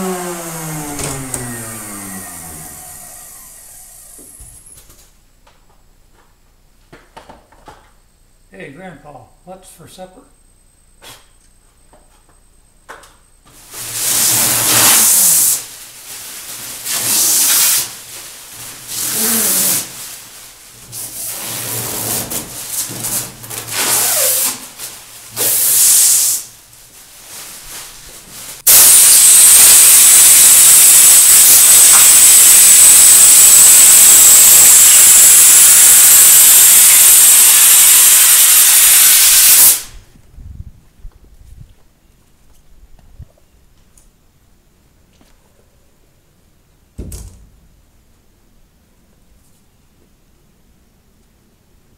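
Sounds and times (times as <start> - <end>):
bursts of work noise: 0.0 - 4.8, 13.6 - 26.5, 28.5 - 40.0
compressed air hissing from hose: 13.7 - 15.7, 16.8 - 18.0, 18.8 - 20.3, 25.4 - 26.5, 28.6 - 40.0.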